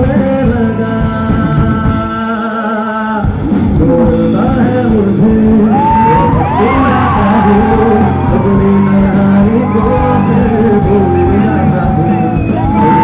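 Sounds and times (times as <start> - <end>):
live band playing: 0.0 - 13.0
man singing: 0.0 - 13.0
crowd shouting: 5.7 - 13.0.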